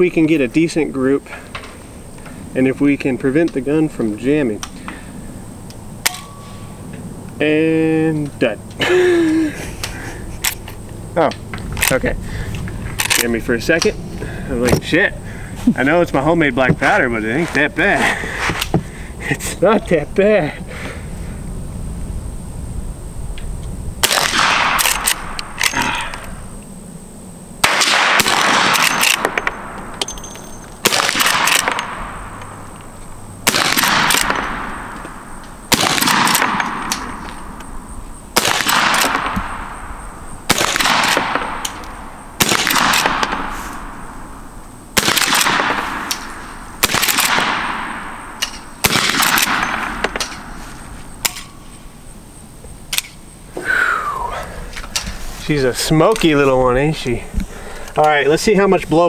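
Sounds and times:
rifle shots with echo: 0:24.0 - 0:25.7, 0:27.6 - 0:29.8, 0:30.8 - 0:32.4, 0:33.4 - 0:35.0, 0:35.7 - 0:37.2, 0:38.4 - 0:39.8, 0:40.5 - 0:44.0, 0:45.0 - 0:50.5.

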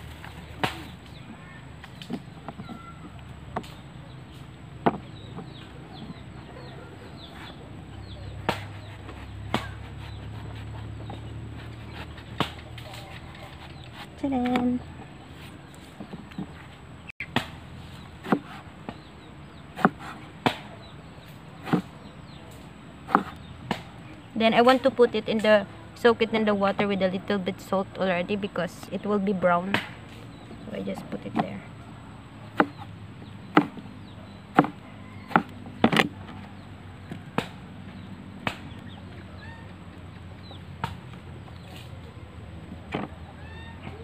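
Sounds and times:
cleaver chopping on cutting board: 0:18.2 - 0:18.6, 0:19.8 - 0:20.6, 0:23.1 - 0:23.8, 0:32.6 - 0:32.8, 0:33.5 - 0:33.8, 0:34.5 - 0:36.1.

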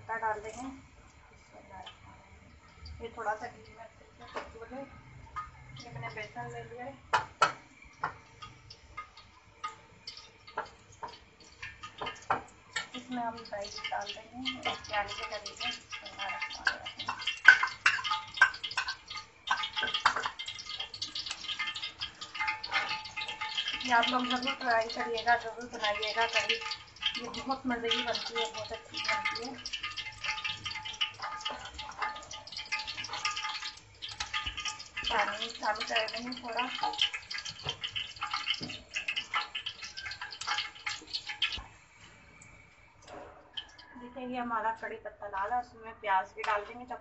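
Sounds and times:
metal spoon stirring wet batter: 0:07.2 - 0:41.7, 0:42.4 - 0:43.9.

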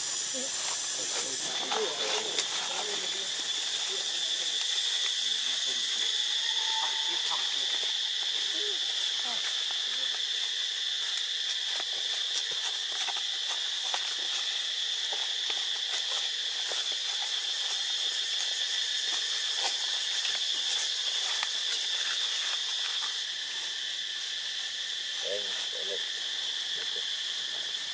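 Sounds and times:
insect chorus drone: 0:00.0 - 0:27.9.

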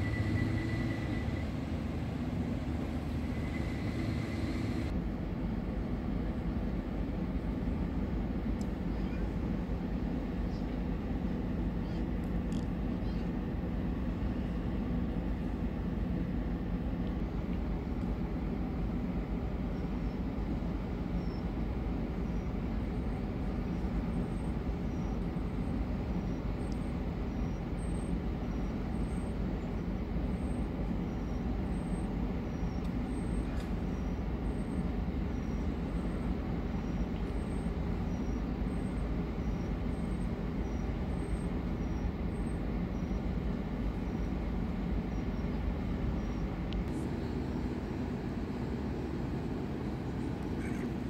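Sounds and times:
ship engines low rumble: 0:00.0 - 0:51.0.

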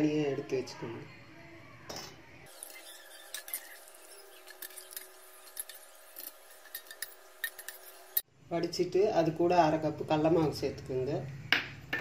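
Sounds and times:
spoon clinking against steel bowls: 0:02.5 - 0:08.2.

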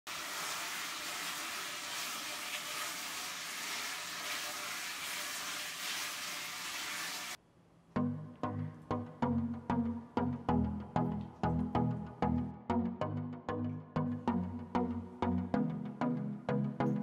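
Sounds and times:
food sizzling in a wok: 0:00.1 - 0:07.4.

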